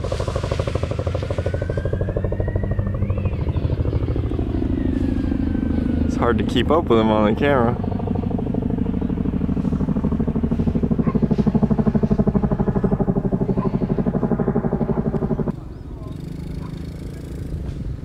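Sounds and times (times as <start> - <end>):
paramotor engine droning: 0.0 - 18.0.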